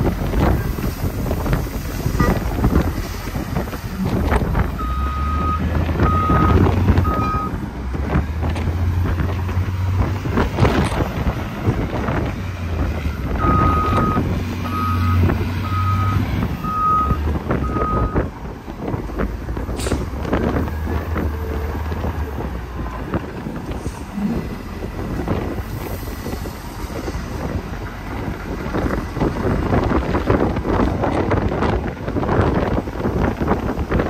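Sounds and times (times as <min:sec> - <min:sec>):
diesel engine running: 0:00.0 - 0:34.0
truck reversing alarm beeping: 0:02.1 - 0:02.8, 0:04.0 - 0:07.6, 0:13.3 - 0:18.3.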